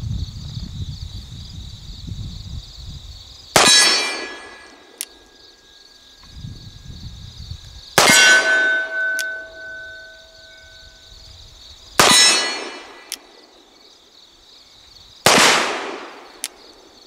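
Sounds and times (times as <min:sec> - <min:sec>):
crickets chirping: 0:00.0 - 0:17.0
revolver gunshots: 0:03.6 - 0:04.9, 0:08.0 - 0:10.1, 0:12.0 - 0:13.2, 0:15.2 - 0:16.4
steel target ringing: 0:03.6 - 0:04.9, 0:08.0 - 0:10.9, 0:12.0 - 0:13.1.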